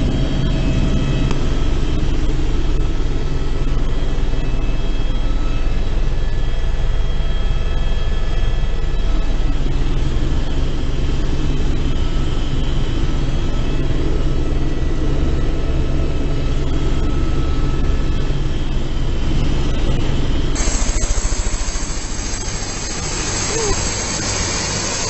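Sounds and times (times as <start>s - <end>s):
helicopter drone from inside: 0.0s - 25.0s
high whining tones: 19.6s - 25.0s
hiss with fast low beating: 20.6s - 25.0s.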